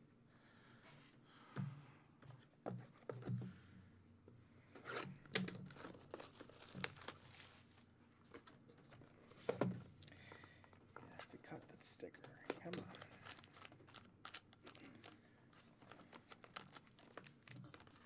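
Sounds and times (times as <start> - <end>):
crinkling: 5.4 - 18.0.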